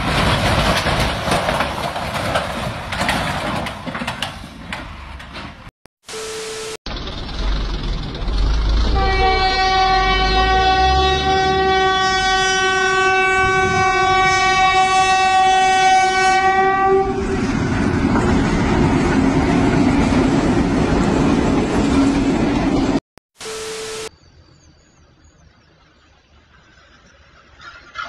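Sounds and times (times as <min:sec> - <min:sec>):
train rumbling and clattering: 0:00.0 - 0:05.7, 0:06.9 - 0:15.8, 0:16.4 - 0:23.0
train horn blast: 0:08.8 - 0:17.4.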